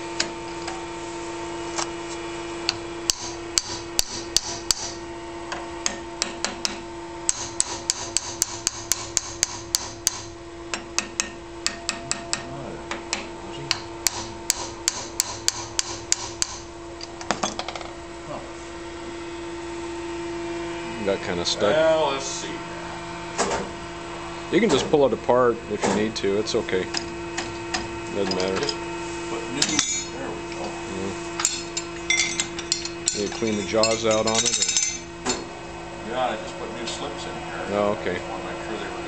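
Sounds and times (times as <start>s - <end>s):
hammer striking steel: 3.1s - 5.0s, 5.8s - 12.5s, 13.1s - 16.6s, 29.6s - 30.2s, 31.4s - 35.1s.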